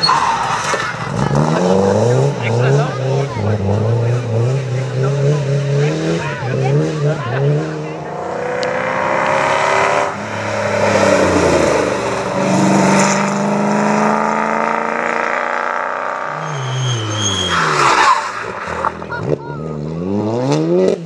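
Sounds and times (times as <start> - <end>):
rally car engines revving: 0.0 - 21.0.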